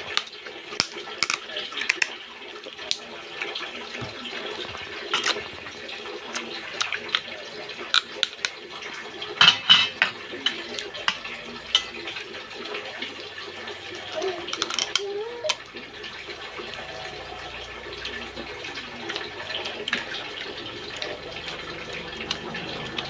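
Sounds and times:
slurping and chewing crab: 0:02.7 - 0:09.2, 0:13.8 - 0:23.0.

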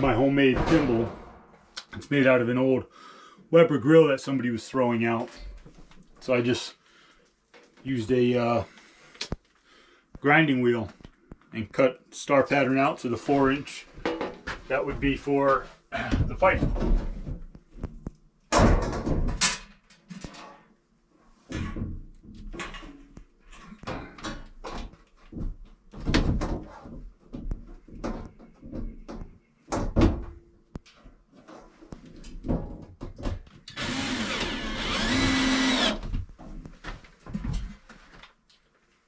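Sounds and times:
cordless drill driving screw: 0:33.7 - 0:36.0.

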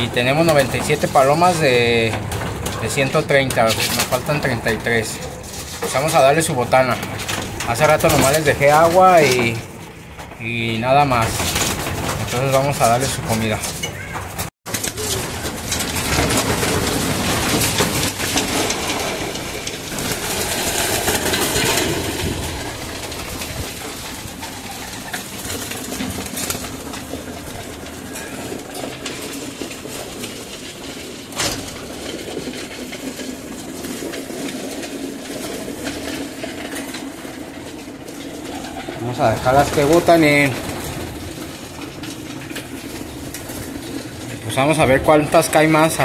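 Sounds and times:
pigeons flapping wings: 0:00.0 - 0:46.0
pigeons cooing: 0:13.7 - 0:45.7.

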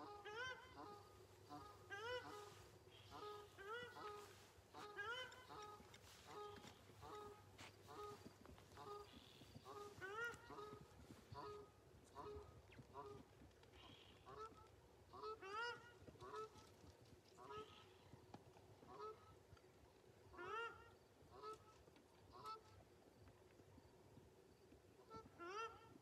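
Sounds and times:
goose-like bird honks: 0:00.0 - 0:16.7, 0:25.1 - 0:25.9.

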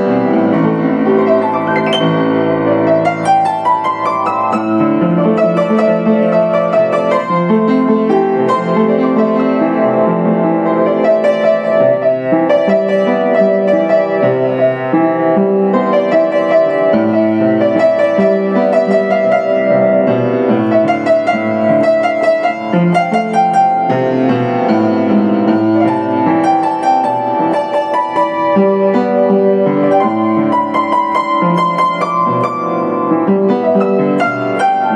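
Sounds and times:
upright piano playing: 0:00.0 - 0:34.9.

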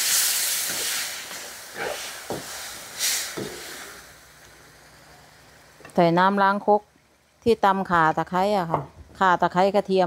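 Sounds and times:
water sizzling in hot wok: 0:00.0 - 0:06.6.

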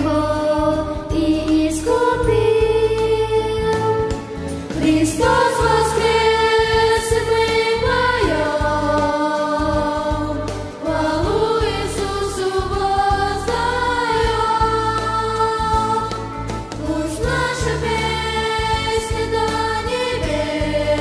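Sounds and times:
instrumental accompaniment: 0:00.0 - 0:21.0
steady bass line: 0:00.0 - 0:21.0
children singing: 0:04.8 - 0:21.0.

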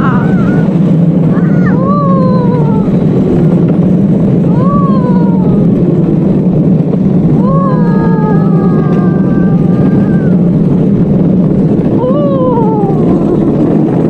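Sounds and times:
person whooping: 0:00.0 - 0:03.0, 0:04.5 - 0:05.8, 0:07.3 - 0:10.6, 0:11.9 - 0:13.6
wheels rumbling on asphalt: 0:00.0 - 0:14.0.

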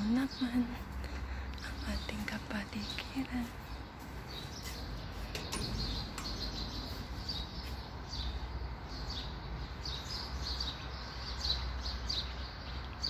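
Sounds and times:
steady low rumble: 0:00.0 - 0:10.0
small birds chirping: 0:00.0 - 0:13.0.

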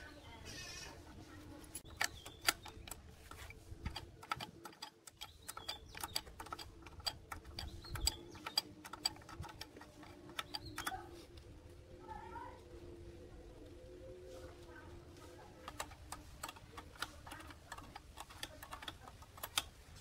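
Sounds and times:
wrench clicking on bolts: 0:01.8 - 0:11.0, 0:15.6 - 0:20.0.

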